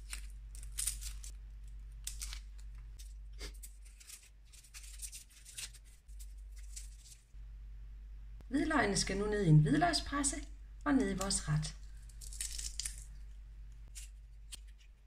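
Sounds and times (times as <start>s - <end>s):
garlic skin crackling: 0.0s - 7.3s, 11.0s - 15.0s
faint low hum: 0.0s - 15.0s.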